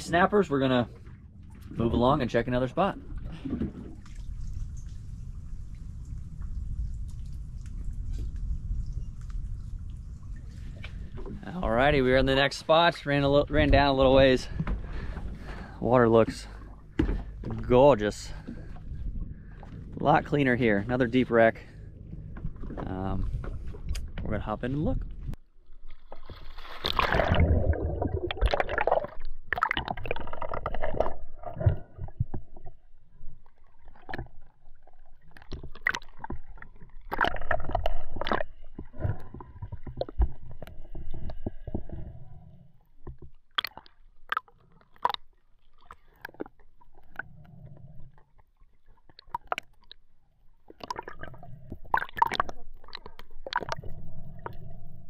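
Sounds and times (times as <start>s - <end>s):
water sloshing and gurgling: 0.0s - 55.0s
rush of splashing: 26.0s - 31.1s.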